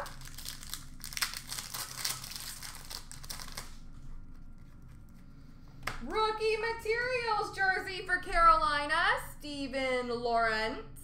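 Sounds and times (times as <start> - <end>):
wrapper crinkling and tearing: 0.0 - 4.8.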